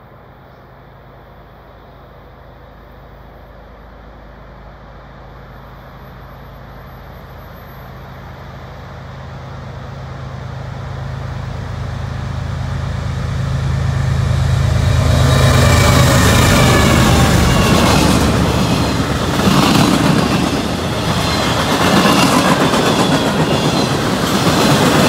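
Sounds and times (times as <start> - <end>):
diesel locomotive engine drone: 0.0 - 25.0
train wheels on rails: 7.3 - 25.0.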